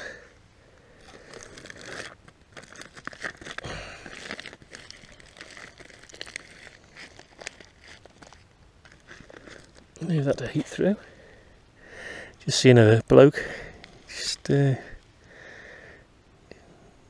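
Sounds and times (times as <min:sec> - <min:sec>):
foil crinkling: 0:01.0 - 0:10.8.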